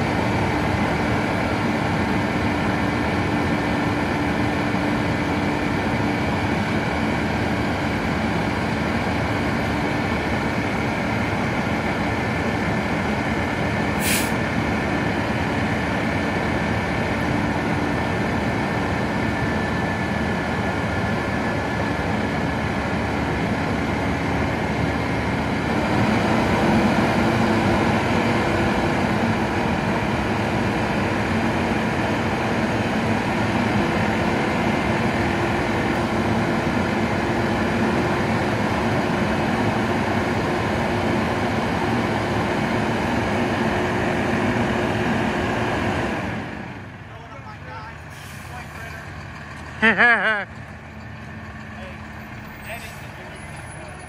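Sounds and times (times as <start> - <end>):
garbage truck diesel engine running: 0.0 - 54.0
short sharp hiss: 14.0 - 14.4.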